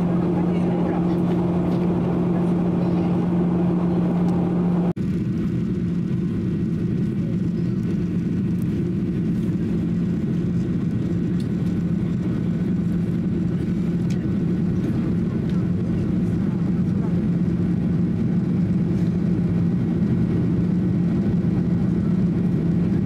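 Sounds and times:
rushing airflow: 0.0 - 5.0
jet engine drone in cabin: 0.0 - 23.0
low hum: 0.0 - 23.0.

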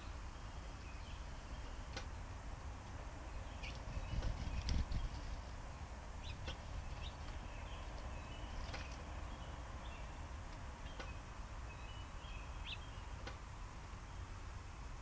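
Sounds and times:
small birds chirping: 0.0 - 14.5
low background rumble: 0.0 - 15.0.

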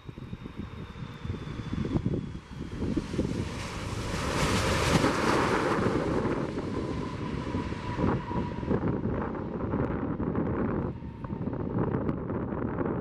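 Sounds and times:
jet engines roaring: 0.0 - 13.0
wind buffeting microphone: 0.0 - 13.0.

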